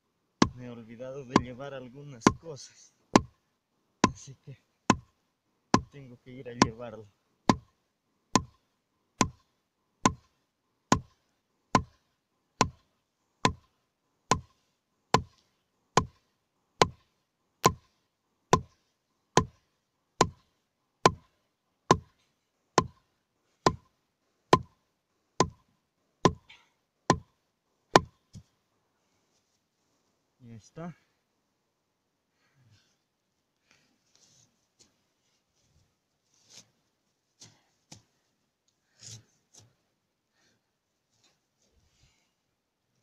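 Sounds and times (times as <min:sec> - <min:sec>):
wooden stake being hammered: 0:01.3 - 0:01.6, 0:02.2 - 0:02.4, 0:03.2 - 0:03.4, 0:04.0 - 0:04.2, 0:04.9 - 0:05.1, 0:05.7 - 0:06.0, 0:07.4 - 0:07.7, 0:08.3 - 0:08.6, 0:09.2 - 0:12.0, 0:12.6 - 0:13.7, 0:14.3 - 0:15.4, 0:16.0 - 0:17.9, 0:18.5 - 0:18.8, 0:19.4 - 0:19.6, 0:20.2 - 0:21.3, 0:21.9 - 0:22.1, 0:22.8 - 0:23.9, 0:24.5 - 0:24.8, 0:25.4 - 0:25.6, 0:26.2 - 0:27.3, 0:27.9 - 0:28.2.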